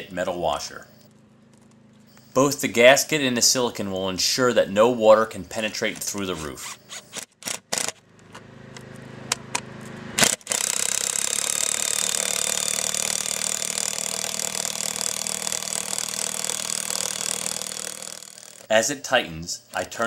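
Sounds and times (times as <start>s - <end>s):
impact driver driving a bolt: 7.1s - 8.0s, 10.2s - 18.7s
impact mechanism hammering rattle: 10.2s - 18.7s.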